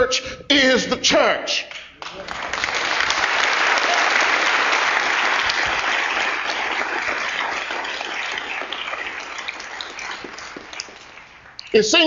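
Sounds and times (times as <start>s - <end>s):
audience applause: 2.0s - 11.7s.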